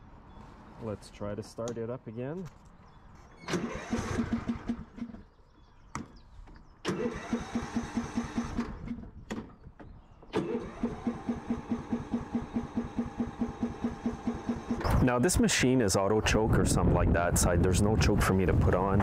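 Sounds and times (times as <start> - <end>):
electric starter cranking engine: 3.4 - 5.2, 6.8 - 9.1, 10.3 - 15.0.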